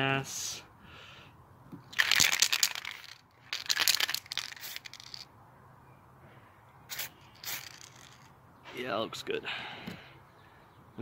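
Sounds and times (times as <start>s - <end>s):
spray paint can hissing: 2.0s - 5.3s, 6.9s - 8.3s.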